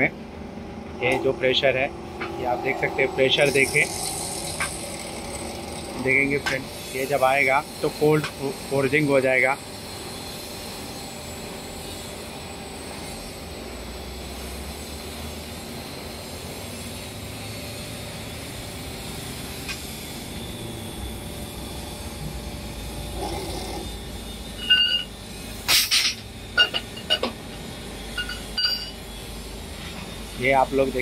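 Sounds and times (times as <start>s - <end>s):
hydraulic forging machine running: 0.0s - 31.0s
metal clanks and clinks: 25.7s - 27.4s, 28.2s - 29.0s.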